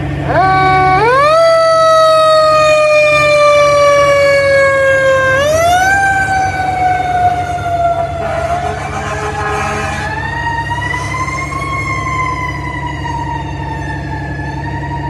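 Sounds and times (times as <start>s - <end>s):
fire engine siren wailing: 0.0s - 15.0s
truck engine running: 0.0s - 15.0s.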